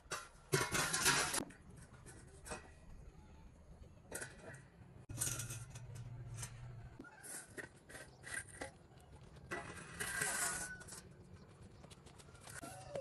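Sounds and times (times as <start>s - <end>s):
steel beam scraping on concrete: 5.1s - 8.8s, 9.5s - 11.1s.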